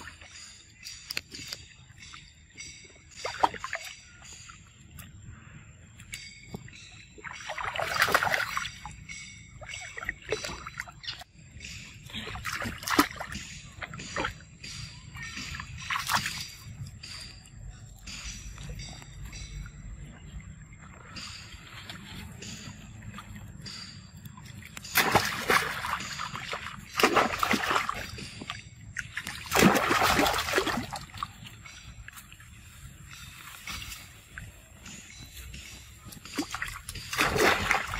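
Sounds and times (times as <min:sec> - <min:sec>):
water splashing and sloshing: 0:00.0 - 0:37.9
loud splashing water: 0:24.9 - 0:28.2, 0:29.2 - 0:31.3, 0:36.5 - 0:37.9.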